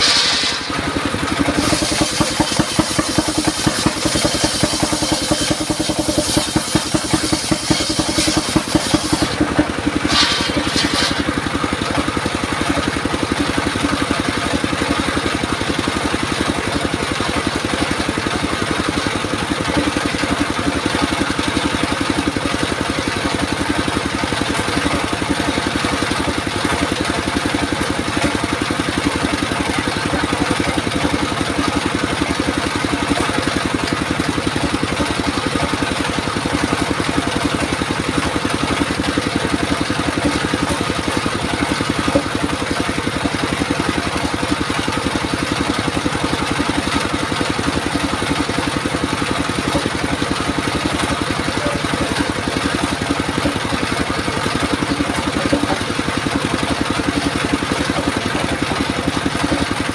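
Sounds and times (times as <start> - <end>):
circular saw ripping log: 0.0 - 11.4
diesel engine running: 0.0 - 59.9.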